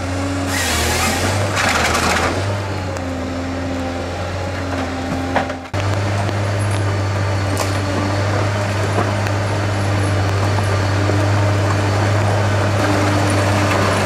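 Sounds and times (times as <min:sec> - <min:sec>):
diesel engine droning: 0:00.0 - 0:14.0.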